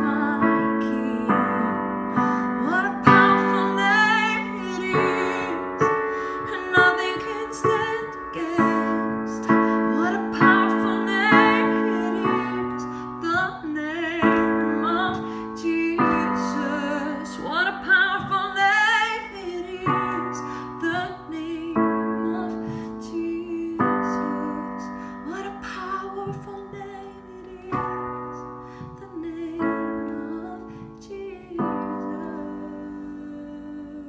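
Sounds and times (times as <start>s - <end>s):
digital piano chords: 0.0s - 34.0s
woman singing wordless lines: 0.0s - 34.0s.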